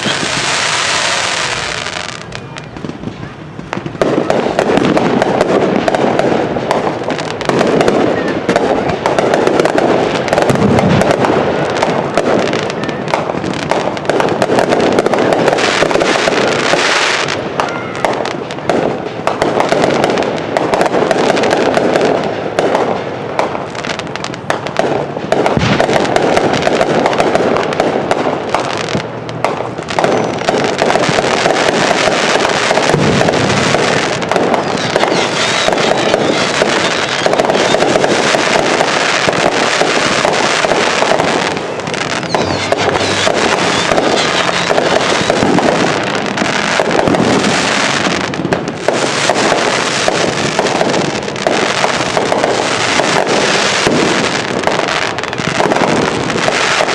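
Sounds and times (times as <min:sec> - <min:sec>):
bright firework hiss: 0:00.0 - 0:29.0
deep firework booms: 0:00.0 - 0:56.9
fireworks crackling and popping: 0:00.0 - 0:56.9.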